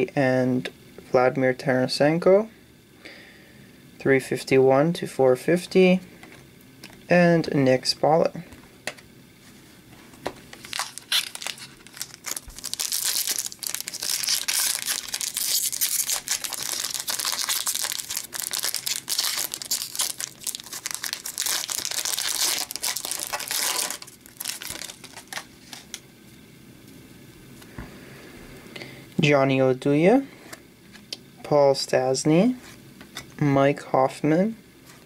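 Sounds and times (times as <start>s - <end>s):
foil wrapper crinkling and tearing: 10.5s - 26.0s.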